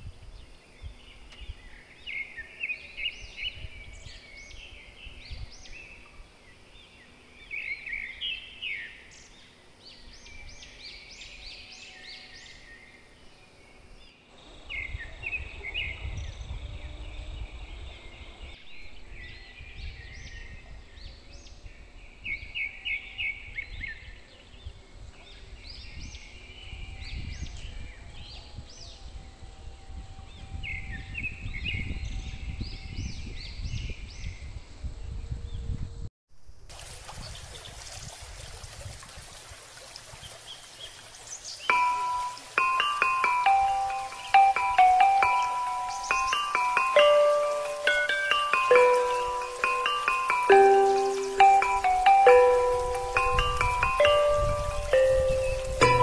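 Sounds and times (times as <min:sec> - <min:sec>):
birds chirping: 0:40.2 - 0:56.0.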